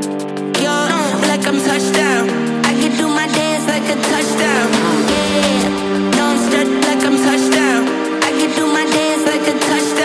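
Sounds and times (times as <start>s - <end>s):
background music with held chords: 0.0s - 10.0s
sliding notes: 2.5s - 7.5s.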